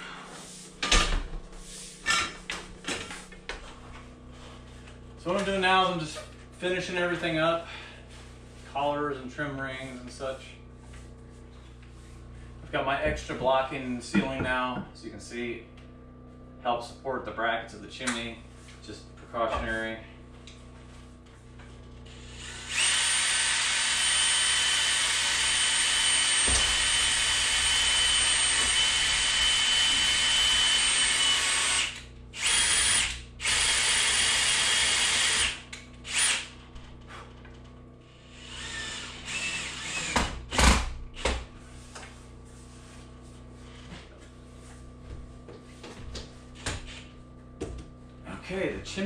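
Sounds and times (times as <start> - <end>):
power drill driving screws: 22.1 - 36.6, 38.3 - 40.9.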